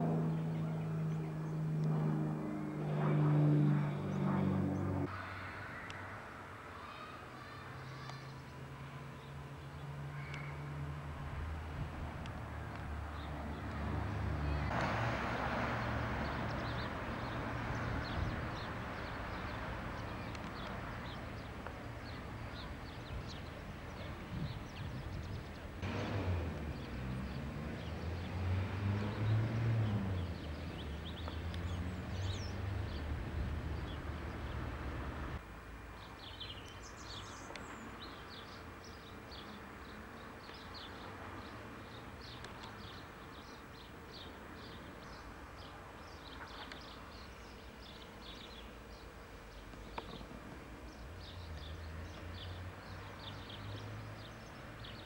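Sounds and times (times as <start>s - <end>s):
car passing: 0.0s - 6.5s, 9.2s - 22.2s, 25.8s - 35.4s
small birds chirping: 6.8s - 10.7s, 16.2s - 26.0s, 26.6s - 35.4s, 36.0s - 55.0s
wind rumble on microphone: 11.3s - 12.5s, 23.0s - 27.8s.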